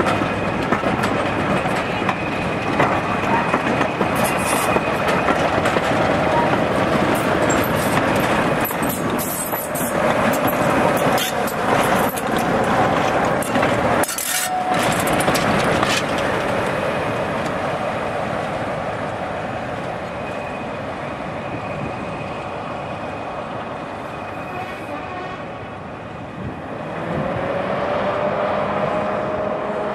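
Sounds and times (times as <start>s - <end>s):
train wheels clicking over track: 0.0s - 17.6s.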